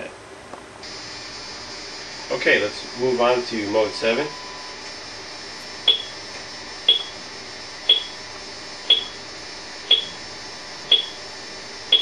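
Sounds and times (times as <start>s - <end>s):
short high-pitched beeps: 5.9s - 6.2s, 6.9s - 7.2s, 7.9s - 8.2s, 8.9s - 9.2s, 9.9s - 10.2s, 10.9s - 11.2s.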